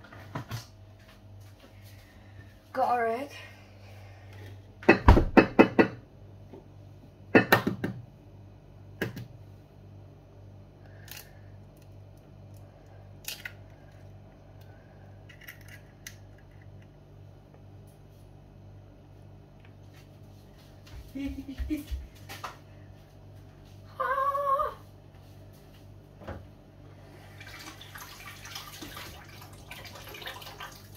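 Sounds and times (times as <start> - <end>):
steady low hum: 0.0 - 28.1.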